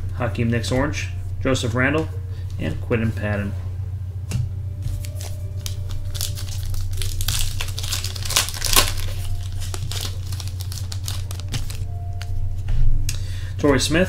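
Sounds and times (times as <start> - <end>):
low steady hum: 0.0 - 14.0
foil wrapper tearing and crinkling: 5.0 - 11.9.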